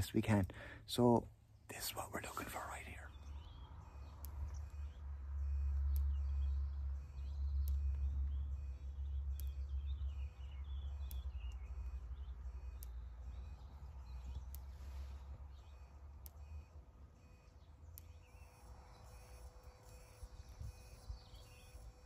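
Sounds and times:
small birds chirping: 0.0 - 22.0
faint sharp tick: 7.6 - 8.1, 11.0 - 11.6, 12.8 - 13.0.

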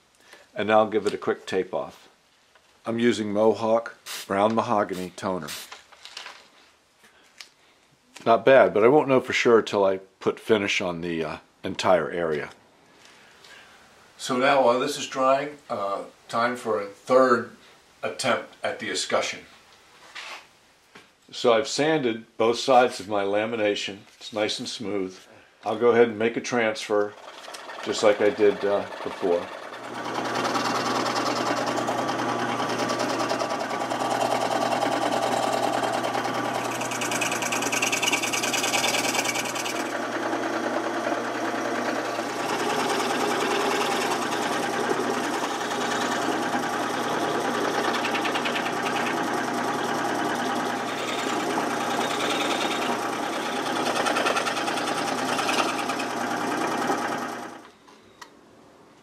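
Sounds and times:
scroll saw cutting: 27.1 - 57.6.

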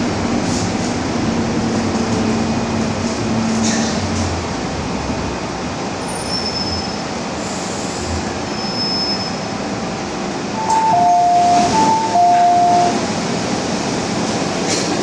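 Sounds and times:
train wheels rumbling on rail: 0.0 - 15.0
two-note door chime: 10.6 - 13.0.

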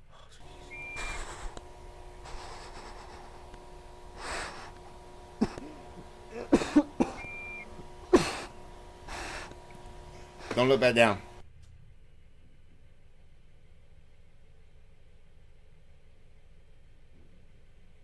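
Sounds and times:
low electrical hum: 0.0 - 18.0
short high beeps: 7.2 - 7.7.

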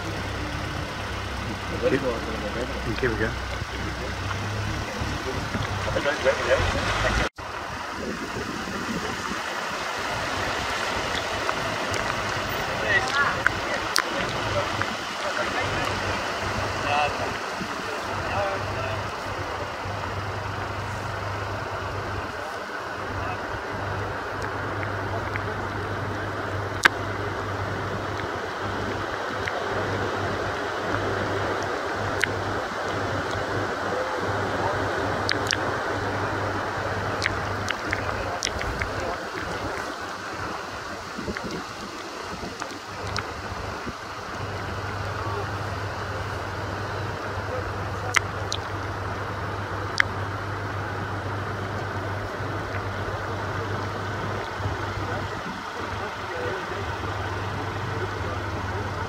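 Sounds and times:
low hum: 0.0 - 42.0
storm wind and rain: 0.0 - 59.0
vehicle engine idling: 0.0 - 59.0
sharp ticks: 35.2 - 35.7.

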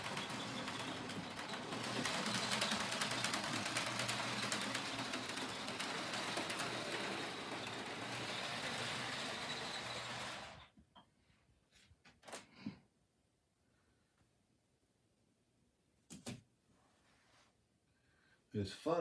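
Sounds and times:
model train motor rumble: 0.0 - 10.7
wheels clicking on rails: 0.0 - 10.7.

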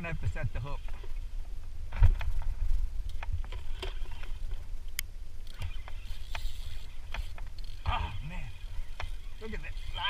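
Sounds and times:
wind rumbling on microphone: 0.0 - 10.0
fishing rod and reel clicks: 3.0 - 10.0.

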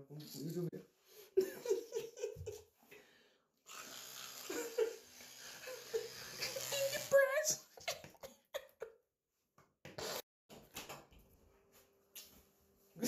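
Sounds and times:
electric toothbrush buzzing: 3.6 - 7.7, 10.0 - 10.2.

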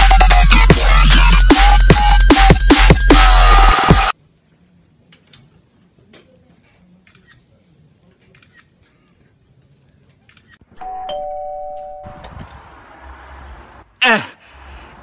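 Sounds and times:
two-tone doorbell chime: 10.8 - 12.3.

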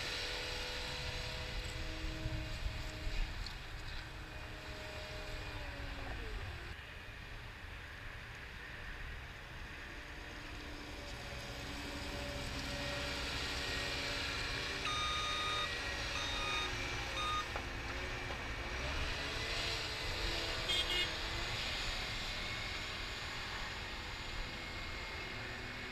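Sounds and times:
diesel loader engine running: 11.2 - 25.9
backup alarm beeping: 14.9 - 17.5.

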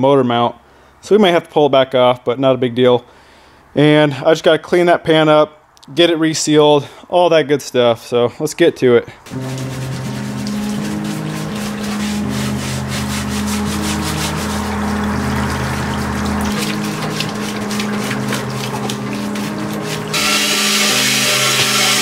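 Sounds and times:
brush scrubbing metal pan: 9.3 - 22.0
solvent flowing from hose: 9.3 - 22.0
loud steady hiss: 20.1 - 22.0.

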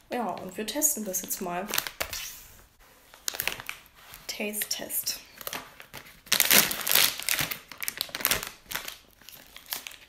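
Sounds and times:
plastic snack bag crinkling: 0.1 - 2.3, 3.1 - 4.7, 5.3 - 10.0.

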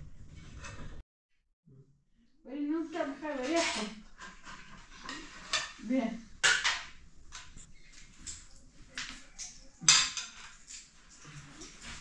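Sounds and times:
spoon scraping a metal plate: 3.2 - 5.9.

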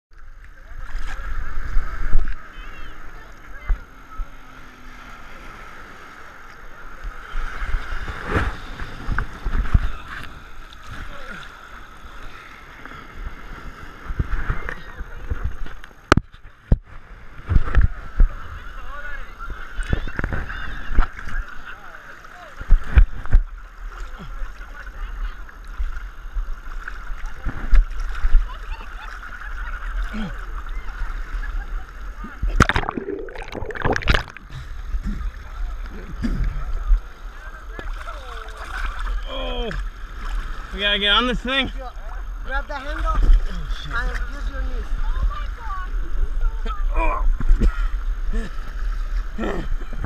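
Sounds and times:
waves thumping: 0.6 - 19.1, 32.3 - 39.2
water sloshing against camera: 27.2 - 40.8
heavy water thumps: 32.6 - 34.4.

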